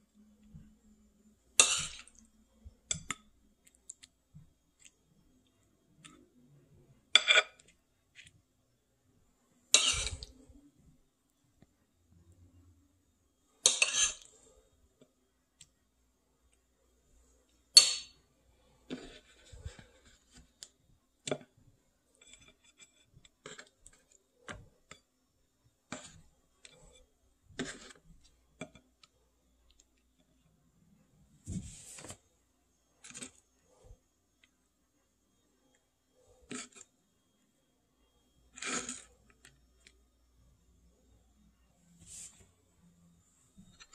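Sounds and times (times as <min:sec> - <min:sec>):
cutlery clinking on plate: 0:09.8 - 0:10.3, 0:13.6 - 0:14.3, 0:17.8 - 0:18.2.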